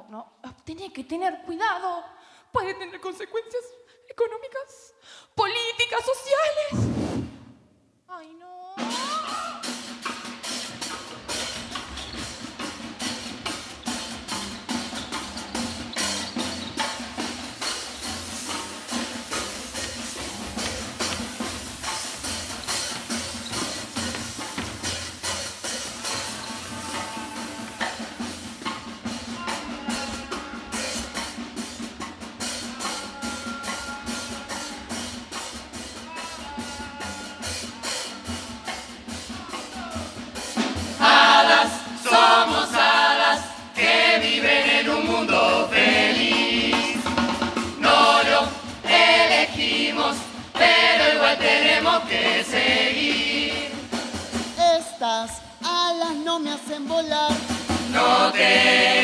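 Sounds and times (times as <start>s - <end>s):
steady drum rhythm: 8.8s - 59.0s
chorus singing in harmony: 25.7s - 31.6s, 40.9s - 54.4s, 57.6s - 59.0s.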